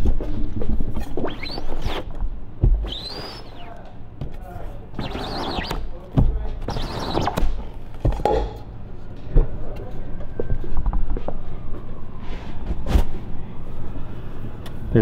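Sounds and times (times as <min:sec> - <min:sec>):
squeegee scraping ink through mesh: 0:05.0 - 0:05.8, 0:06.6 - 0:07.4.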